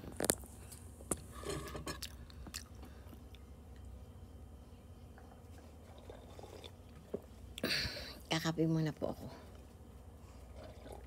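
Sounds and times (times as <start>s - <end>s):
steady low hum: 0.0s - 11.0s
person chewing food: 1.9s - 3.8s.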